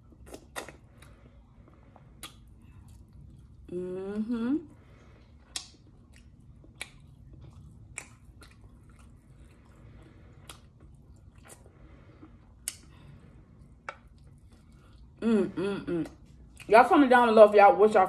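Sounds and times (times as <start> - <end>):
faint chewing: 0.0 - 3.7, 4.7 - 15.2, 16.0 - 16.7
wet mouth smacking: 0.2 - 0.9, 2.2 - 2.5, 5.5 - 8.6, 12.6 - 12.9, 13.8 - 14.4.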